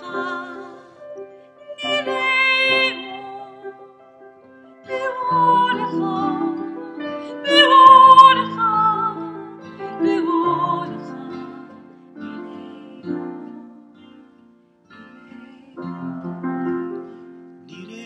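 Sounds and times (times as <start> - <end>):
woman and man singing: 0.0 - 1.0, 4.9 - 13.7, 15.1 - 16.5, 17.7 - 18.0
piano: 0.0 - 18.0
strummed acoustic guitar: 4.9 - 18.0.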